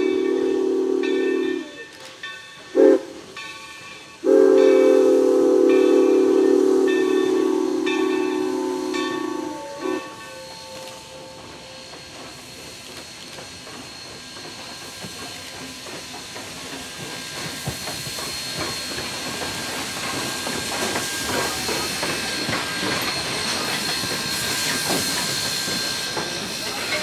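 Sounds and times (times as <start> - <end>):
steam locomotive hissing: 0.0 - 27.0
wheels clattering on rails: 10.0 - 27.0.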